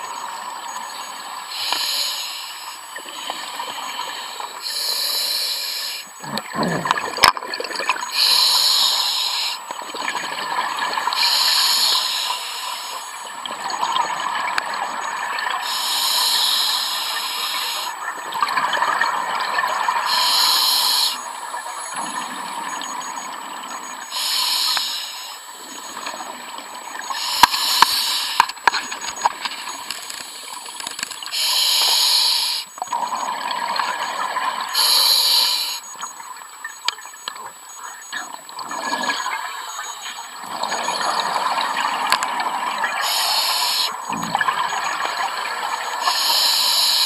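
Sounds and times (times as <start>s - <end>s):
regulator hiss: 1.5s - 2.8s, 3.8s - 6.4s, 8.1s - 9.6s, 11.1s - 13.2s, 15.6s - 18.0s, 20.1s - 21.2s, 24.1s - 25.5s, 27.1s - 28.6s, 30.1s - 32.8s, 34.8s - 36.0s, 43.0s - 44.1s, 46.0s - 47.0s
bubbling exhalation underwater: 6.2s - 8.0s.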